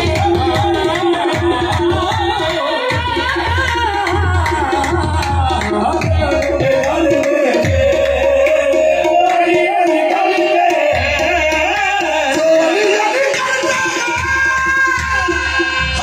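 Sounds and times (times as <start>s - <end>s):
group of voices singing: 0.0s - 16.0s
tabla rhythm: 0.0s - 16.0s.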